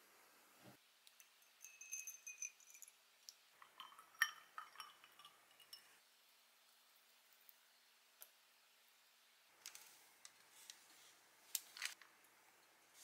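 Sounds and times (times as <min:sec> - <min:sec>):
ice cubes clinking against glasses: 0:01.2 - 0:03.0, 0:03.6 - 0:06.0
milk pouring: 0:03.6 - 0:05.9.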